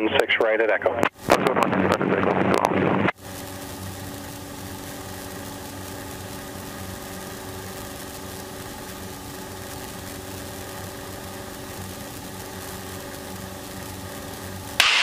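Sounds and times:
radio call in headset: 0.0 - 3.1
airplane engine drone: 0.0 - 15.0.

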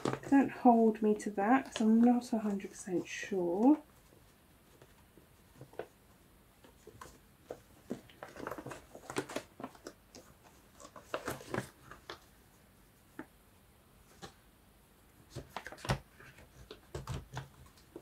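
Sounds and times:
paper rustling and tapping: 0.0 - 0.4, 1.5 - 12.3, 14.1 - 14.4, 15.3 - 18.0.

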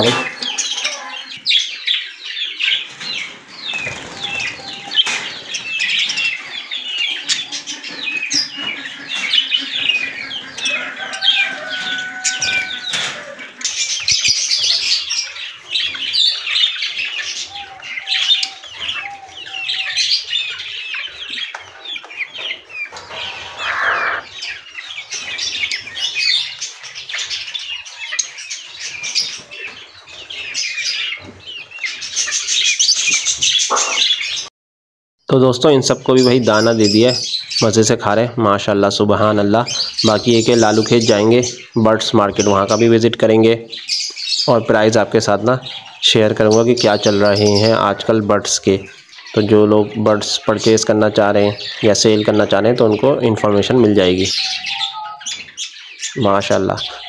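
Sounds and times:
caged birds chirping: 0.0 - 34.5, 35.3 - 57.0
long steady bird call: 0.0 - 34.5, 51.5 - 57.0.

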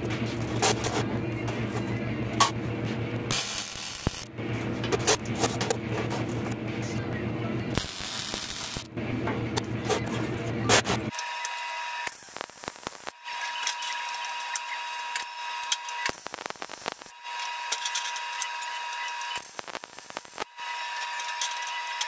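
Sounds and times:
arc welding crackling hiss: 3.3 - 4.3, 7.8 - 8.9, 11.1 - 22.0.

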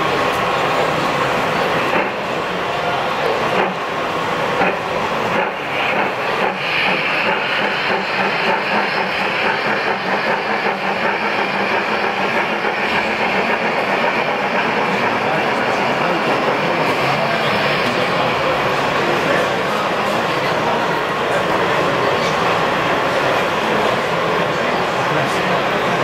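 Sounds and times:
train wheels clattering on track: 0.0 - 26.0
steam hissing: 0.1 - 20.6.

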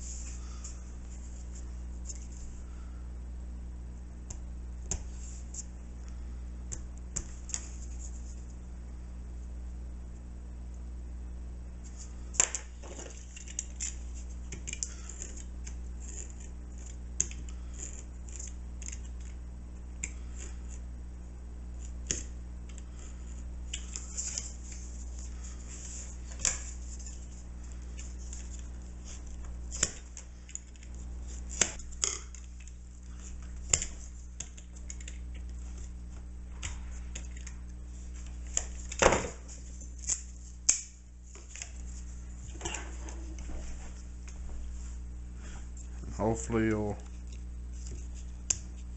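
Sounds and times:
knife scraping wood: 14.6 - 19.0.

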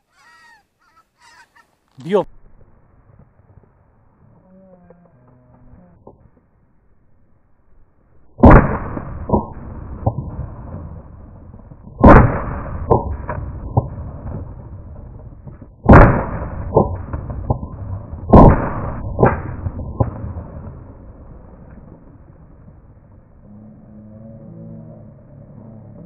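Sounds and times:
faint cracks: 1.3 - 6.6
shotgun shots: 8.4 - 11.0, 12.0 - 14.5, 15.9 - 20.9.

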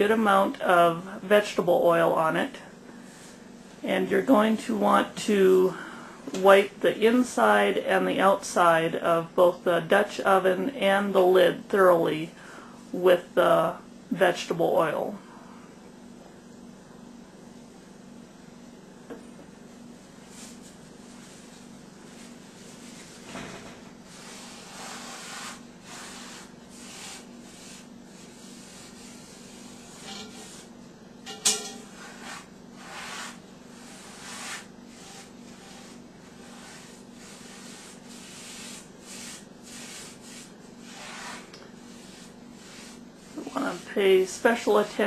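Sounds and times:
paper towel wiping metal pot: 20.2 - 23.4, 24.1 - 30.8, 31.7 - 45.0.

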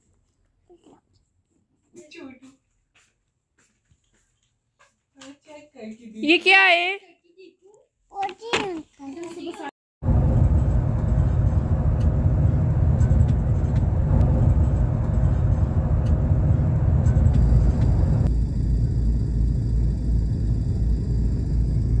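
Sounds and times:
road and engine rumble in car: 10.0 - 22.0.

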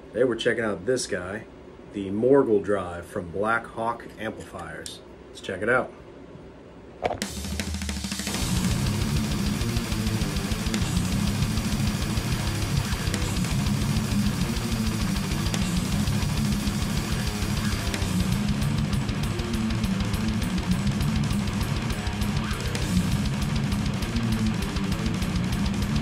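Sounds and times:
metal drum track: 7.1 - 26.0
distorted electric guitar chugging: 7.2 - 26.0.

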